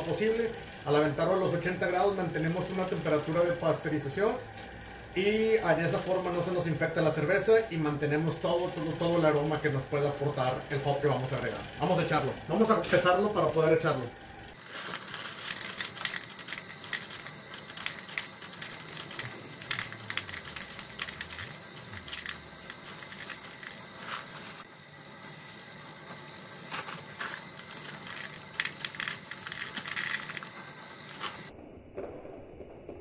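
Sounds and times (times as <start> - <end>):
foil bag crinkling: 14.5 - 24.7, 26.6 - 31.5
pellets clicking into plastic tub: 14.6 - 24.6, 26.7 - 31.5.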